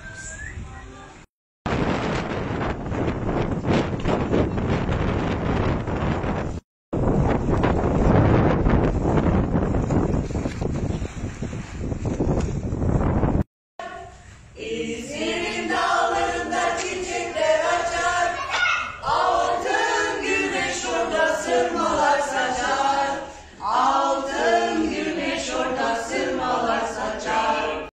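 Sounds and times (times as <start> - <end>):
voices singing together echoing: 13.8 - 27.9.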